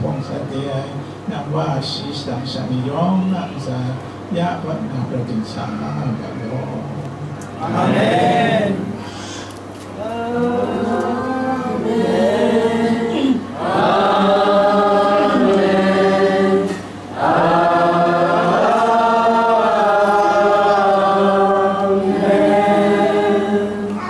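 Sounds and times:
congregation singing a hymn: 7.6 - 9.0, 10.0 - 24.0.

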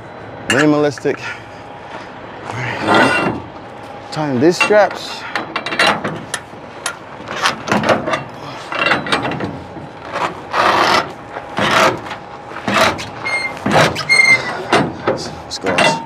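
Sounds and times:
strap scraping on winch: 7.2 - 16.0
short squeak: 13.0 - 14.7.

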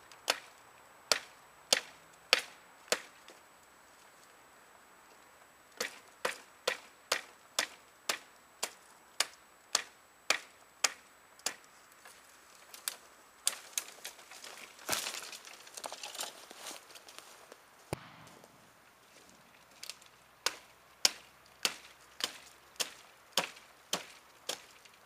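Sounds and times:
blade chopping wood: 1.1 - 3.1, 20.4 - 24.7
footsteps rustling dry leaves: 12.0 - 20.2.

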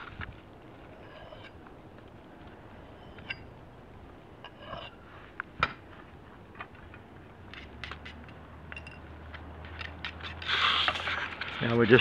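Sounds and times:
hatchet and rock clicks and scrapes: 6.6 - 12.0.

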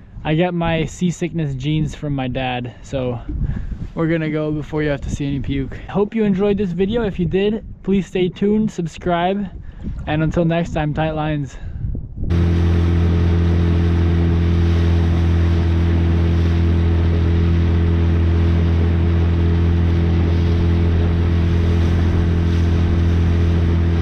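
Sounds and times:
wind: 0.0 - 24.0
outboard motor drone: 12.3 - 24.0.

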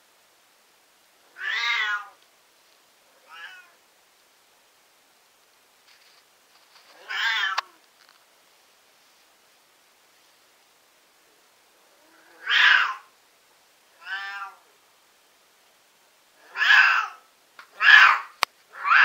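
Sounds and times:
cat yowling: 1.4 - 2.2, 3.2 - 3.8, 7.0 - 7.8, 12.0 - 13.1, 14.0 - 14.6, 16.4 - 19.0.

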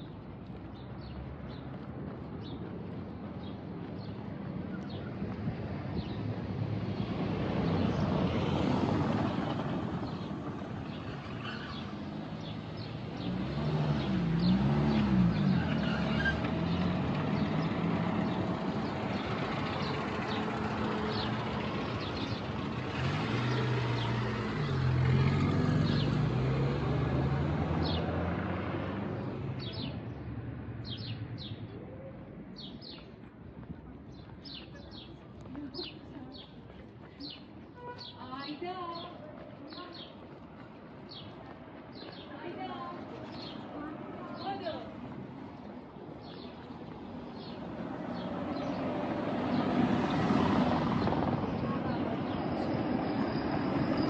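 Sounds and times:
small birds chirping: 30.8 - 33.2, 34.1 - 54.0.

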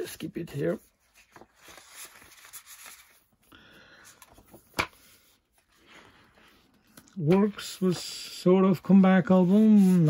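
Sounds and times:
paper rustling and sliding: 0.5 - 3.4, 8.8 - 10.0.

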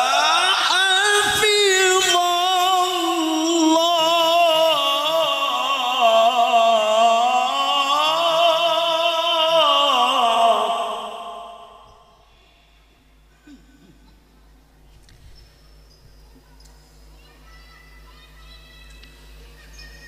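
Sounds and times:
man chanting melodically into microphone: 0.0 - 12.0.

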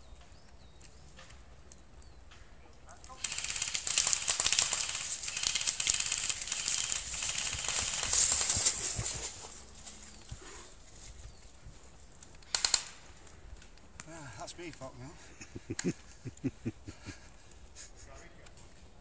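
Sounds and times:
airsoft guns firing bursts: 3.1 - 9.0, 12.5 - 13.0.

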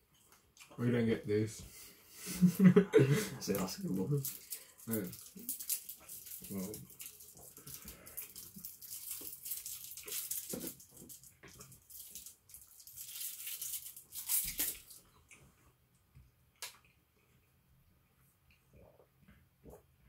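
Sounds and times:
food packaging crinkling: 3.6 - 15.1.

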